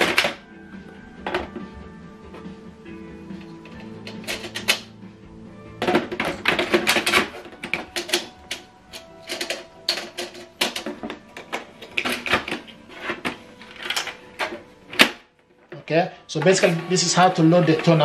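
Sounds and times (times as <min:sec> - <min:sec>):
plastic clicks and clatter: 0:05.8 - 0:15.8.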